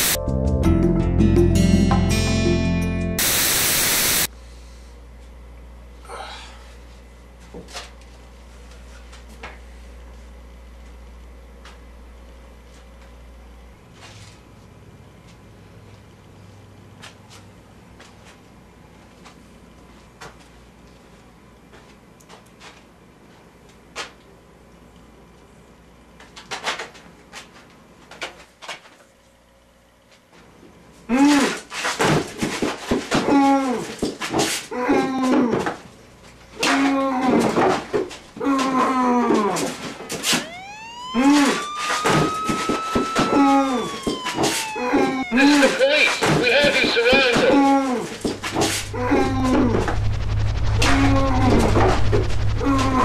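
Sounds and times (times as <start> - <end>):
music cue: 0.0 - 3.6
loud static hiss: 3.2 - 4.3, 48.2 - 53.0
low room hum: 4.3 - 44.0, 44.6 - 53.0
low hum: 48.1 - 53.0.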